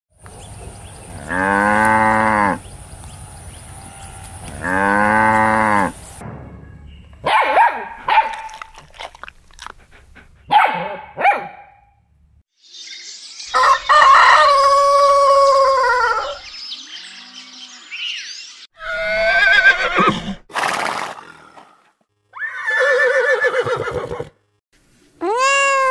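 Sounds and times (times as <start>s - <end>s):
calf mooing: 1.1s - 2.6s, 3.8s - 5.9s
rooster crowing: 13.5s - 16.4s.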